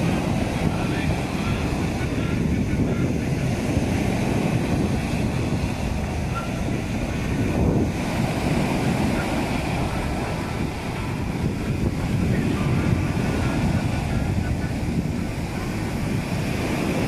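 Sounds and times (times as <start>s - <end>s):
waves breaking on shore: 0.0s - 17.0s
wind buffeting microphone: 0.0s - 17.0s.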